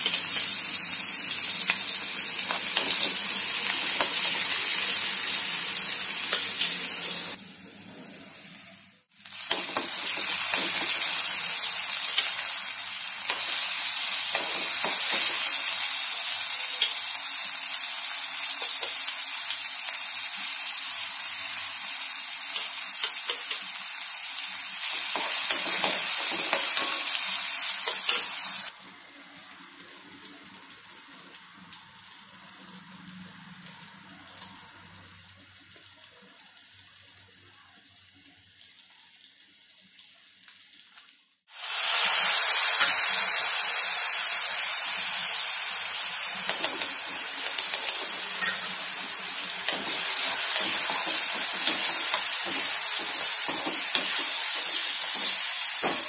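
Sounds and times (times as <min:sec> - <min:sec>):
vegetables sizzling in oil: 0:00.0 - 0:56.0
spatula scraping wok: 0:46.4 - 0:56.0.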